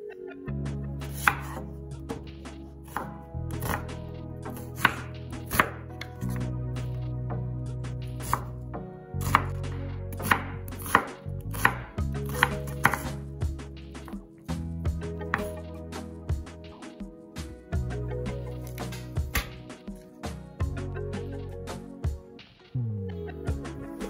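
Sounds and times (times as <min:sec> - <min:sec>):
knife chopping onion on wood: 0:01.1 - 0:01.6, 0:02.9 - 0:06.5, 0:08.2 - 0:08.5, 0:09.2 - 0:13.2, 0:15.2 - 0:15.6, 0:18.7 - 0:19.5.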